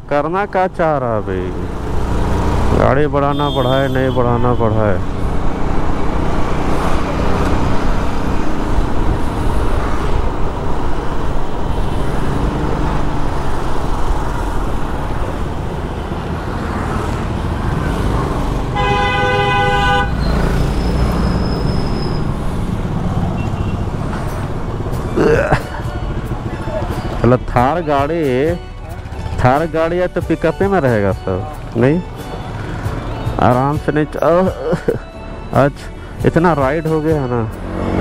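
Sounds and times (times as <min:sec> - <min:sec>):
road traffic rumble: 0:00.0 - 0:38.0
vehicle horn honk: 0:03.2 - 0:04.9, 0:18.7 - 0:22.2, 0:23.4 - 0:23.9.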